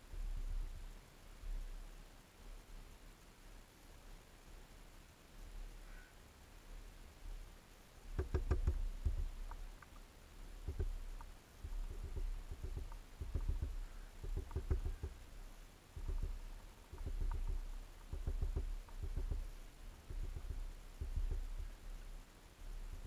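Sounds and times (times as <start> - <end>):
bird pecking at seed feeder: 8.1 - 23.0.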